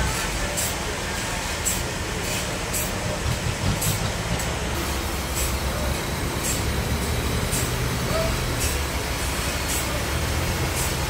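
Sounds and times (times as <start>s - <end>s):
forklift engine rumble: 0.0s - 11.0s.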